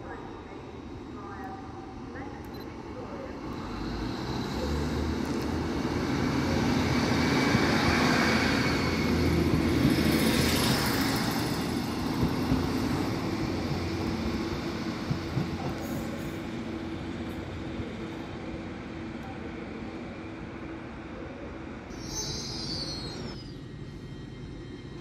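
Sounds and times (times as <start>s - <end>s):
diesel train engines: 0.0s - 25.0s
train wheels on rails: 3.4s - 19.8s.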